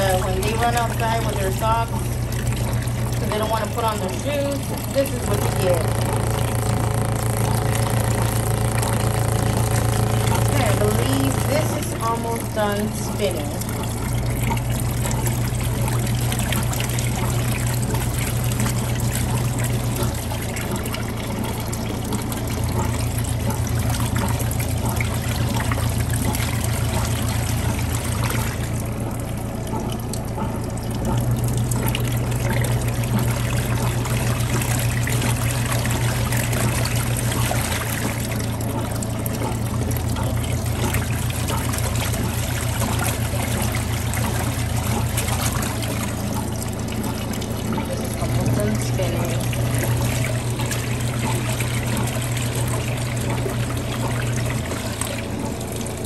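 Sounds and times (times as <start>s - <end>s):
washing machine motor hum: 0.0s - 56.0s
water trickling: 0.0s - 56.0s.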